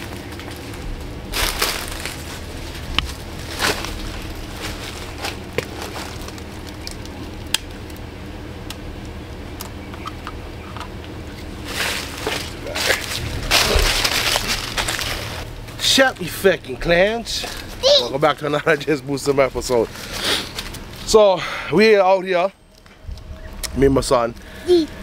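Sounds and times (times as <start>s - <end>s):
rustling and crunching handling: 0.0s - 10.0s, 10.6s - 21.2s
low rumble: 0.0s - 17.8s.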